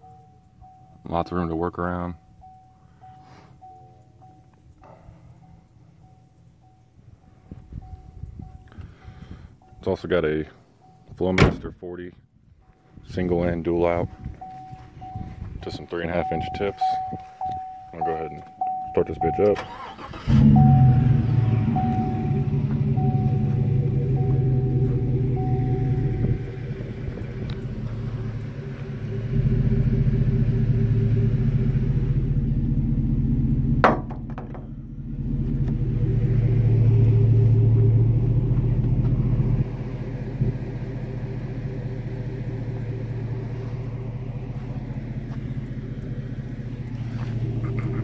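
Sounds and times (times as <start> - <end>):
truck engine idling: 12.7 - 48.0
sharp knock: 33.8 - 34.7.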